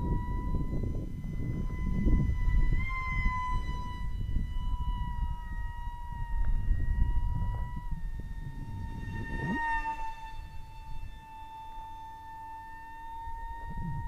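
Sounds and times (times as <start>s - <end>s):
model jet motor whining: 0.0s - 14.0s
wind rumbling on microphone: 0.0s - 14.0s.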